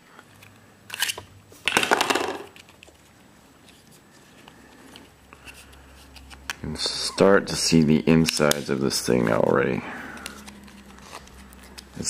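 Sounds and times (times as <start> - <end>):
tape peeling: 2.5 - 6.7, 8.2 - 12.0.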